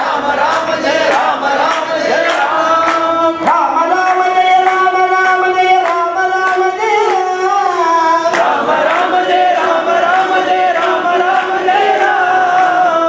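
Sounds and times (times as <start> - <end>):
men singing devotional song: 0.0 - 13.0.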